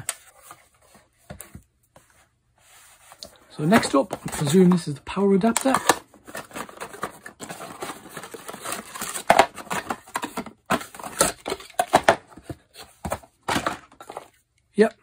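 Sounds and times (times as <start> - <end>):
cardboard packaging rustling: 2.7 - 14.4.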